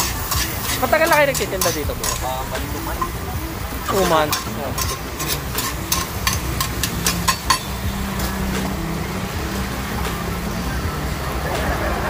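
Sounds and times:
metal utensil tapping: 0:00.0 - 0:08.7
vehicle engine humming: 0:00.0 - 0:12.0.

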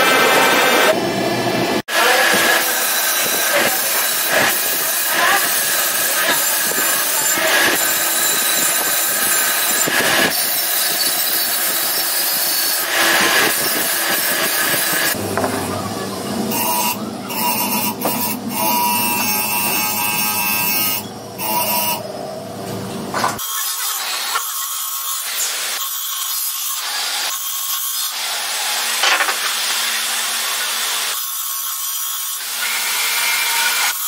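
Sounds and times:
machine humming: 0:12.9 - 0:23.2.

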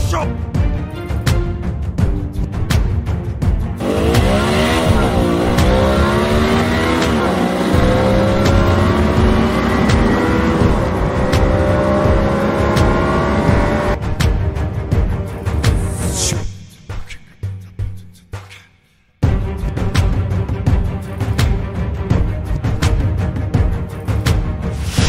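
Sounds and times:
music: 0:00.0 - 0:25.0
vehicle engine running: 0:03.8 - 0:14.0.

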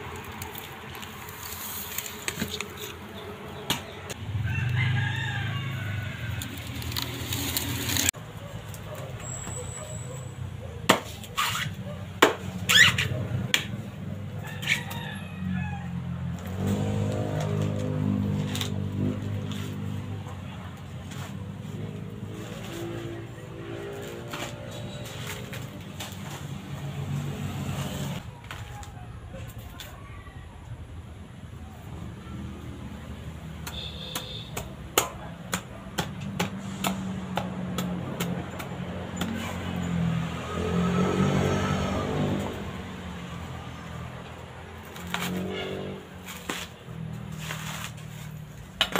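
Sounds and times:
machete chopping coconut husk: 0:03.6 - 0:04.2, 0:10.8 - 0:13.9, 0:33.6 - 0:40.6, 0:44.8 - 0:48.9.

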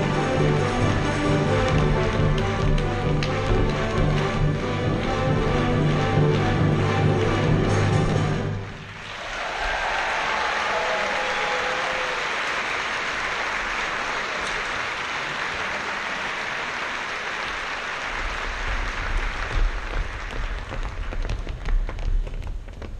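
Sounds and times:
audience applauding: 0:00.0 - 0:21.9
feet thumping on wooden stage: 0:01.7 - 0:05.0, 0:18.2 - 0:22.9.

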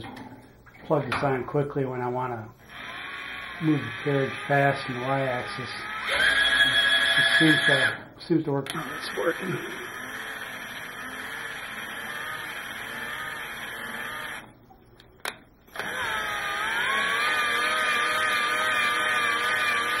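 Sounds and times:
cordless drill motor whine: 0:02.6 - 0:08.0, 0:08.7 - 0:14.5, 0:15.7 - 0:20.0.

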